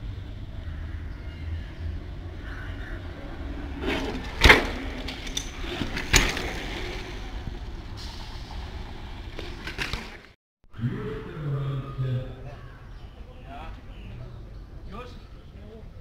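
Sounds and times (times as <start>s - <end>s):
bicycles knocking over curb: 3.8s - 7.9s.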